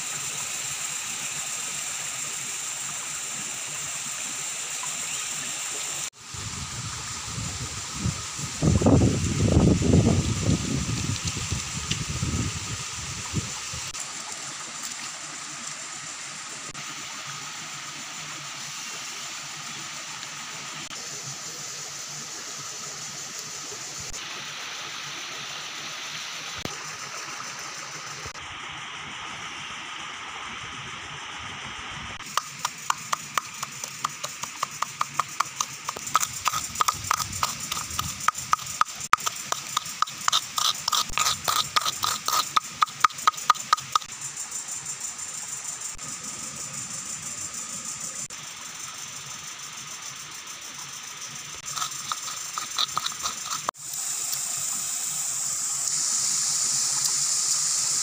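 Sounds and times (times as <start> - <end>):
stream flowing: 0.0 - 29.1, 32.2 - 46.0, 51.5 - 58.0
stone pounding in coconut shell: 32.2 - 44.1, 51.6 - 53.6.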